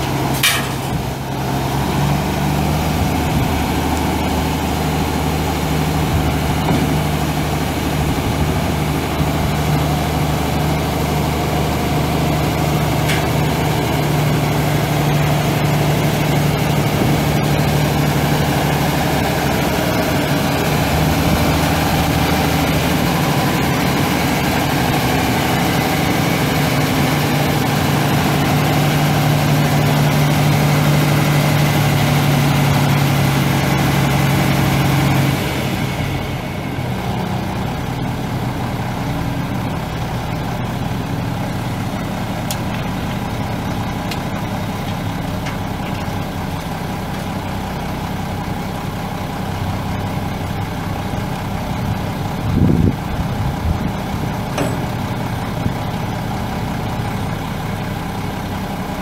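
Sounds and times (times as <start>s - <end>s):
diesel truck engine idling: 0.0s - 59.0s.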